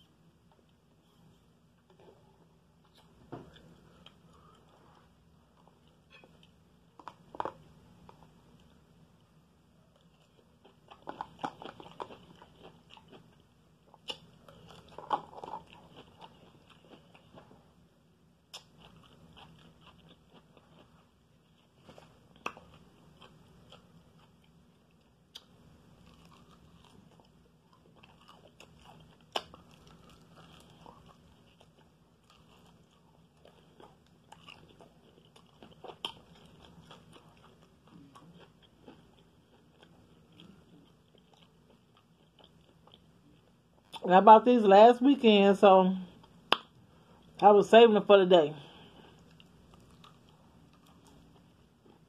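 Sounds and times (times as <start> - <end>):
person crunching and chewing: 2.9 - 8.8, 10.0 - 17.8, 18.5 - 44.0, 48.9 - 52.0.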